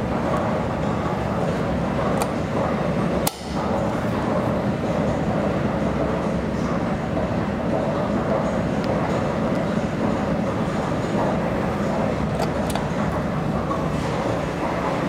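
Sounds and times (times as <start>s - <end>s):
elevator mechanical rumble: 0.0s - 15.0s.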